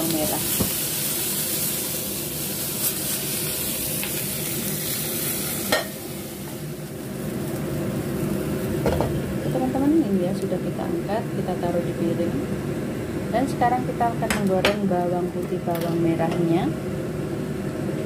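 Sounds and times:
hot oil sizzling in a frying pan: 0.0s - 11.6s.

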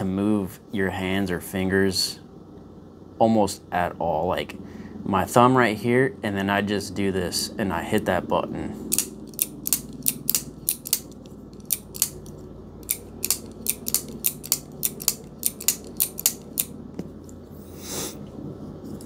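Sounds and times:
folding knife clicking: 8.9s - 16.7s.

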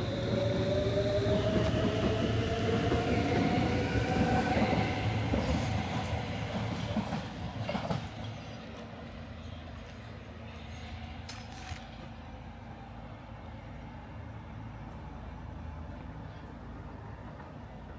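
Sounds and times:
wheels rumbling on rail: 0.0s - 17.9s.

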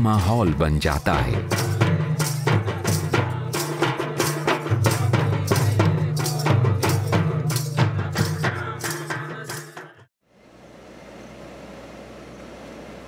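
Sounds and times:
hand drums quick rhythm: 0.2s - 9.9s.

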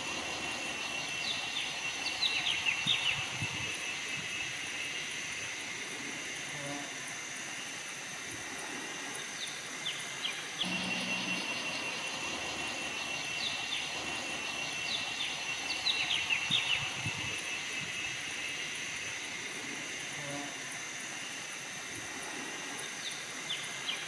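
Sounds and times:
bird chirping: 0.0s - 4.6s, 9.9s - 18.6s
high insect drone: 0.0s - 24.0s
buzzing insect: 10.6s - 22.9s.

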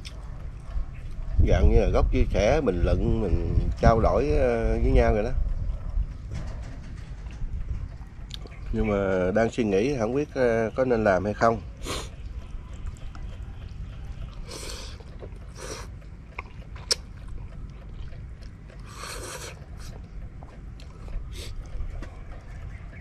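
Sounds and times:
chewing: 0.0s - 1.5s, 5.4s - 8.7s, 11.6s - 23.0s
man slurping noodles: 14.4s - 15.9s, 18.8s - 20.0s.

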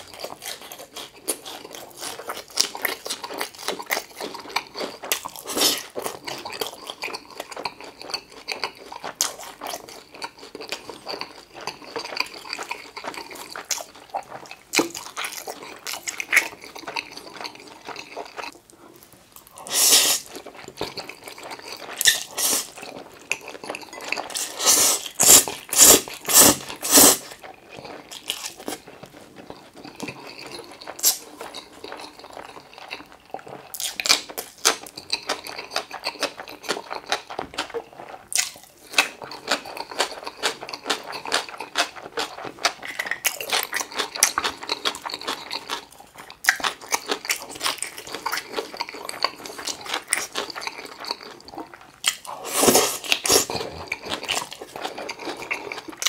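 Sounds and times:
chewing and mouth sounds: 0.0s - 56.0s
noodle slurps: 19.6s - 20.5s, 21.1s - 22.8s, 23.6s - 28.9s, 47.0s - 56.0s.

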